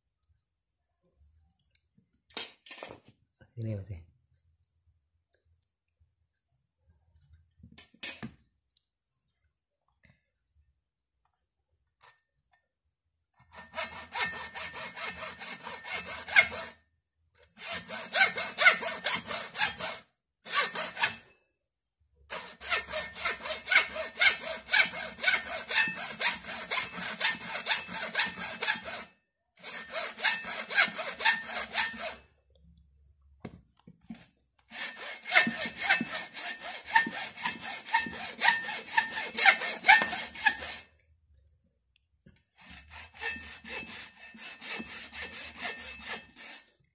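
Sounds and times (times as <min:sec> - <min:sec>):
hacksaw cutting plastic: 0:13.4 - 0:16.8, 0:17.4 - 0:21.3, 0:22.3 - 0:32.2, 0:33.4 - 0:41.0, 0:42.5 - 0:46.9.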